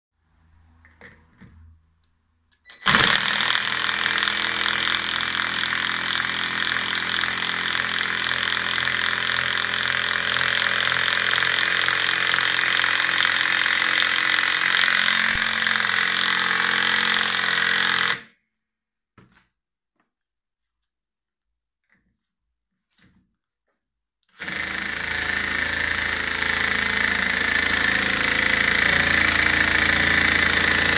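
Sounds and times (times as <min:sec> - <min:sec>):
impact driver hammering: 0:02.8 - 0:18.2, 0:24.4 - 0:30.9.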